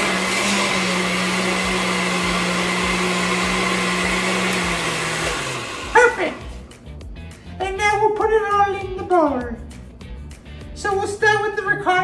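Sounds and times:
blender whirring: 0.0 - 6.7.

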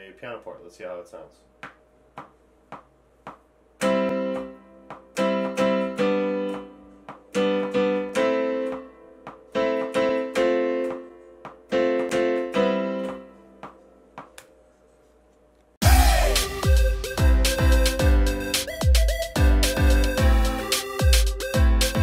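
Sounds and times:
piano block chords: 3.8 - 14.2.

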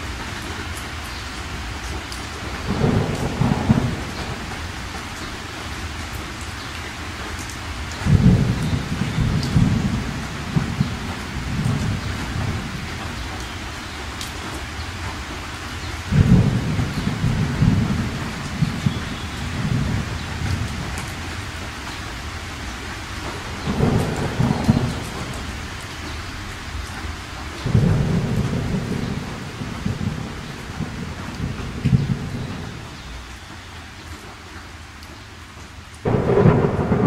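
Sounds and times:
steady rain: 0.0 - 37.0
thunder rumbling: 2.6 - 5.6, 8.0 - 13.4, 16.1 - 21.6, 23.1 - 27.0, 27.6 - 33.0, 36.0 - 37.0.

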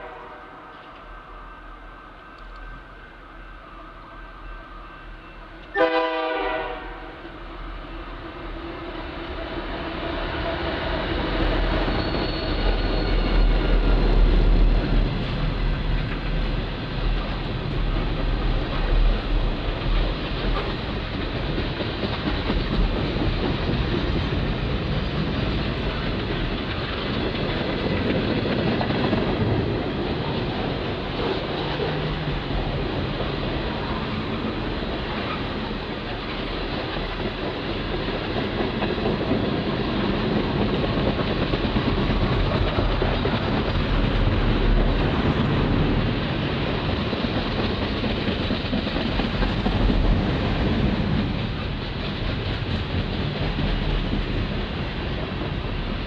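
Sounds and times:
train horn blast: 0.0 - 0.6, 5.7 - 7.2
train cars rolling over rails: 7.4 - 56.0.

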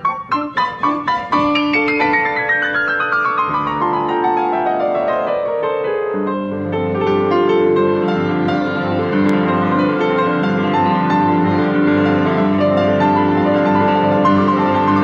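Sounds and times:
classical piano music: 0.0 - 15.0.

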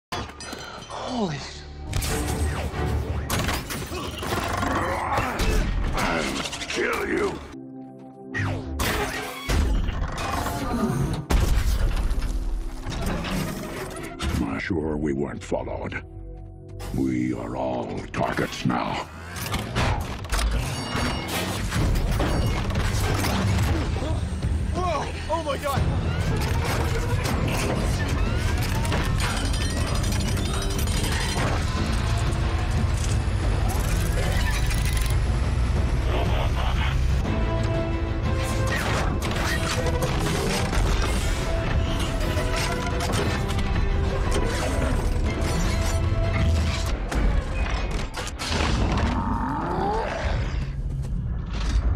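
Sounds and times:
action film music score: 0.1 - 51.9
mechanical whirring effects: 26.1 - 37.2.

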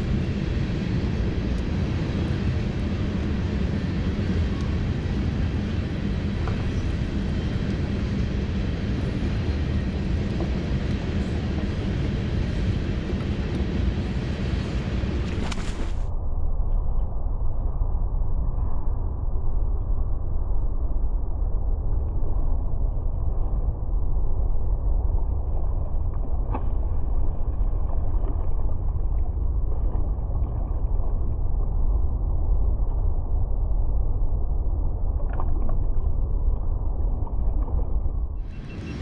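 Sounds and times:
water sloshing against hull: 15.1 - 16.1, 25.1 - 31.8, 35.0 - 39.0.

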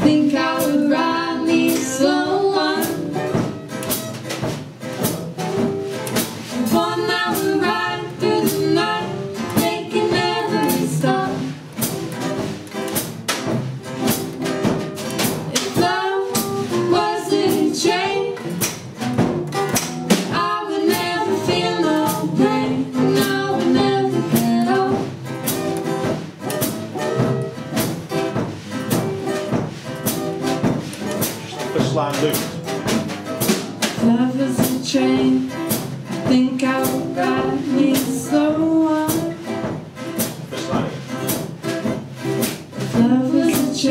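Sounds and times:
person singing: 0.0 - 3.5, 6.6 - 11.6, 15.5 - 18.5, 20.3 - 25.1, 34.0 - 39.5, 42.9 - 43.9
acoustic bass guitar: 0.0 - 43.9
acoustic guitars: 0.0 - 43.9
drum kit beat: 0.0 - 43.9.

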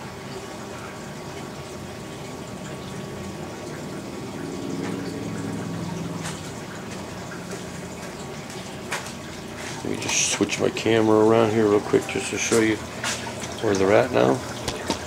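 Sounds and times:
aquarium water trickling: 0.0 - 15.0
low hum: 2.7 - 8.3.

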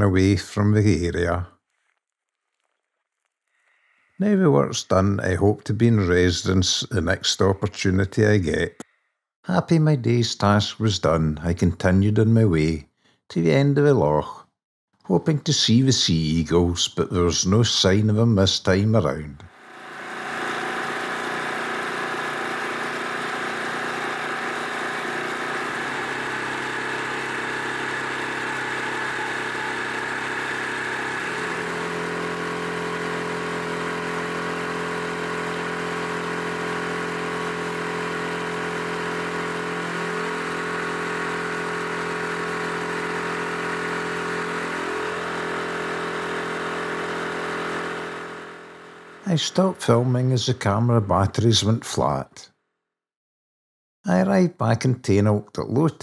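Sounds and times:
small boat motor running: 19.5 - 49.3.

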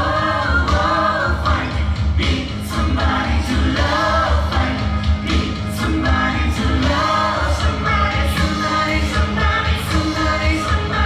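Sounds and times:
voices singing: 0.0 - 11.0.

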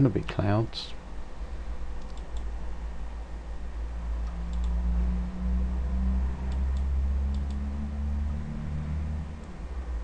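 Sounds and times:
steady low hum: 0.0 - 10.0
faint mouse clicks: 2.0 - 2.5, 4.2 - 4.8, 6.5 - 7.6.

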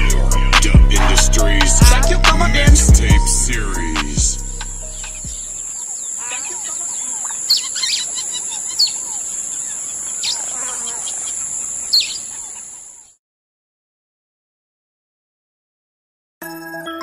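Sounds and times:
music bass: 0.0 - 5.7
birds chirping: 0.0 - 13.2.

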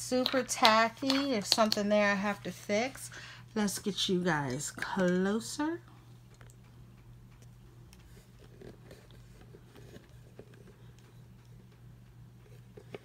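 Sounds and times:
low electrical hum: 0.0 - 13.0
clicks and rustles of handling: 6.3 - 13.0.

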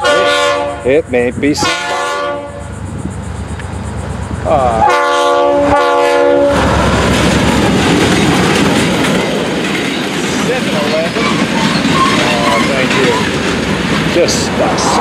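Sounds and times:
locomotive air horn blast: 0.0 - 1.0, 1.6 - 2.8, 4.8 - 6.8
locomotive engine passing: 0.0 - 15.0
wheels on rails: 6.5 - 15.0.

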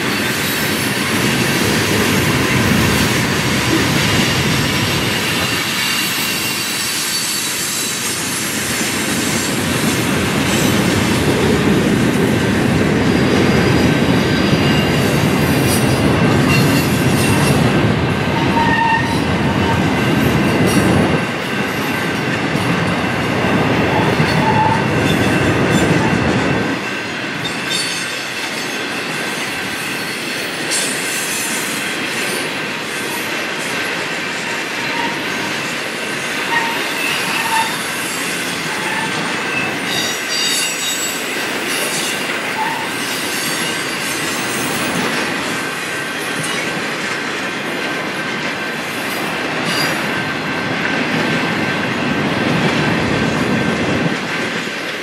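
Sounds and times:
train wheels rumbling on rail: 0.0 - 55.0
high wheel squeals: 4.7 - 8.7, 18.3 - 19.9, 34.6 - 35.6, 36.3 - 45.1.

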